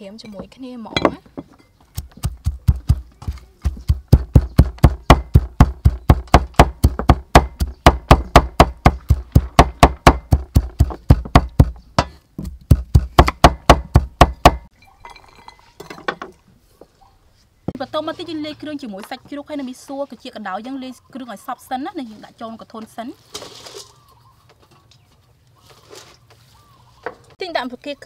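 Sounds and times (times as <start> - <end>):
cleaver knocking on chopping block: 2.0 - 14.6.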